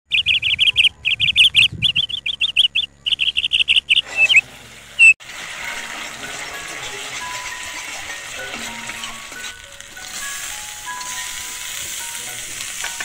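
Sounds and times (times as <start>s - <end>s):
bird chirping: 0.1s - 4.4s.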